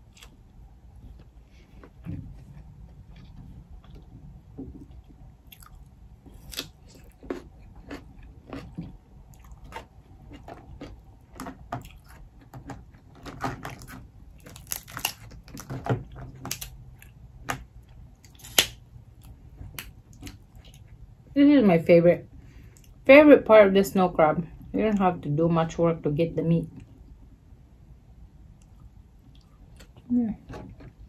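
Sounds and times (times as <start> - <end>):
chewing and crunching: 0.0 - 17.2, 17.8 - 21.1, 28.6 - 31.0
crab shells cracking: 9.6 - 16.8.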